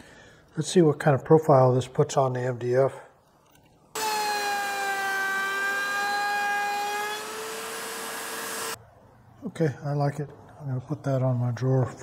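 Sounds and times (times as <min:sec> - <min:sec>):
router whining while cutting: 0:04.0 - 0:08.8.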